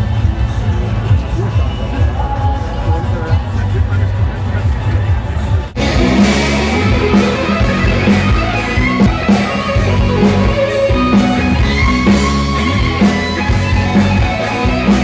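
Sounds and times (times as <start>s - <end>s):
live rock band playing: 5.6s - 15.0s.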